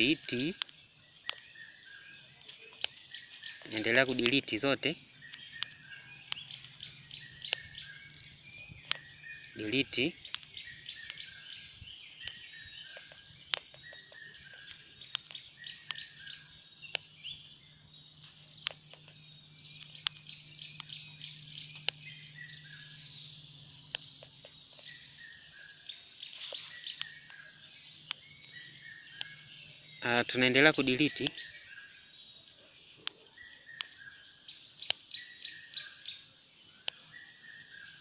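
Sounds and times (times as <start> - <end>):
birds chirping and twittering: 0.0 - 38.0
sharp clicks: 0.3 - 1.5, 2.6 - 7.9, 8.7 - 11.4, 12.2 - 17.1, 18.2 - 22.2, 23.8 - 25.0, 26.4 - 29.4, 34.8 - 35.2.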